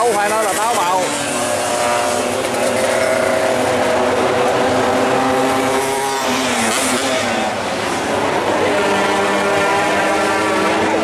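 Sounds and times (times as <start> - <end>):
racing motorcycle engines: 0.0 - 11.0.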